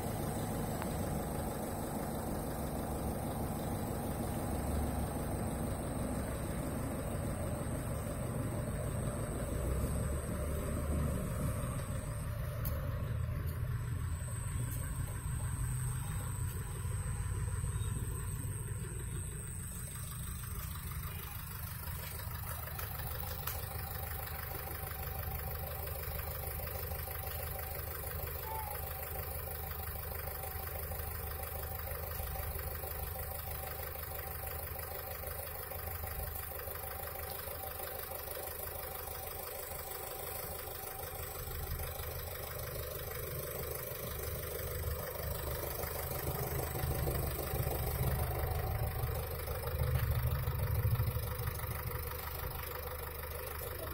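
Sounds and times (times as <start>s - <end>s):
low engine-like hum: 0.0s - 53.9s.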